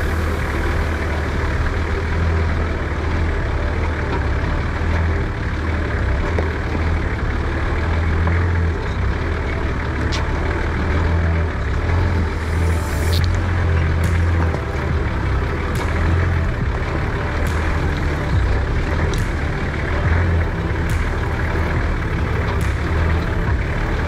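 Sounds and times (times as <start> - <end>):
vehicle engine running at low revs: 0.0 - 24.0.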